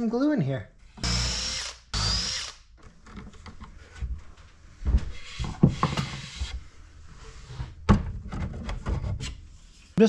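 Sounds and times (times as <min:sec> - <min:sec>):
power drill running: 0:01.0 - 0:02.6
wooden parts and clamps handled: 0:02.8 - 0:06.5, 0:07.7 - 0:09.4.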